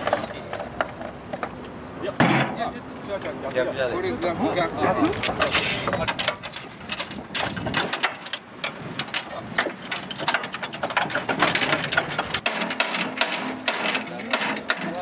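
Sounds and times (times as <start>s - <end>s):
bolts and tools clinking on steel: 0.0s - 1.6s, 5.2s - 15.0s.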